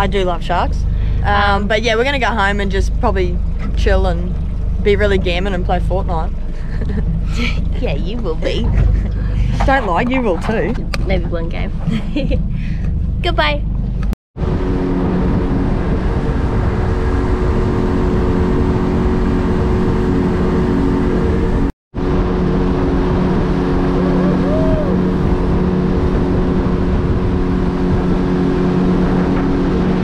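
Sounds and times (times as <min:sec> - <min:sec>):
outboard motor running: 0:00.0 - 0:30.0
water rushing past boat: 0:14.4 - 0:30.0.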